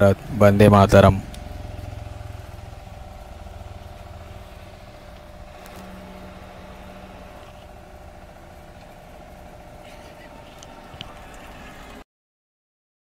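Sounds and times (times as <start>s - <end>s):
mechanical whine: 0.0s - 12.0s.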